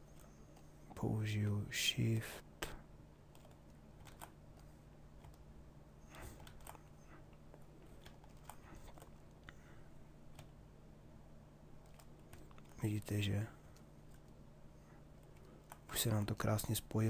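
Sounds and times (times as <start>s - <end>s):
low steady hum: 0.0s - 17.0s
computer keys clicking: 3.3s - 5.5s, 6.4s - 6.9s, 7.9s - 9.5s, 10.3s - 10.6s, 11.8s - 12.8s.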